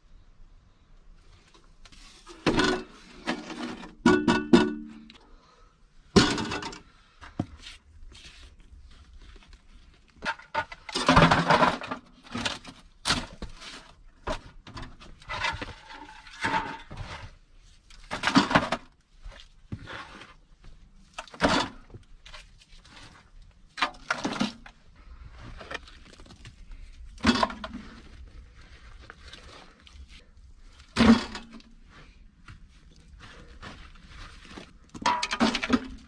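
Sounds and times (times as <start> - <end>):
clay rubble crumbling: 8.6 - 36.0.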